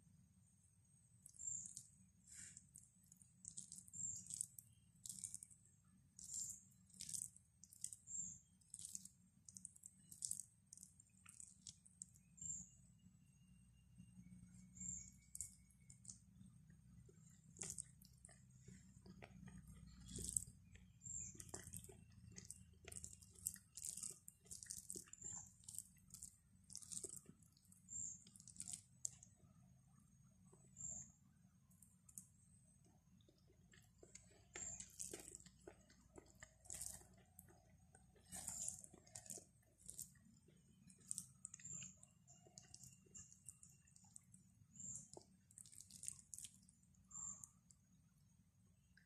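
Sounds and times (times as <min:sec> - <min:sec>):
person chewing and mouth smacks: 0:01.2 - 0:12.7, 0:14.5 - 0:29.4, 0:31.7 - 0:47.9.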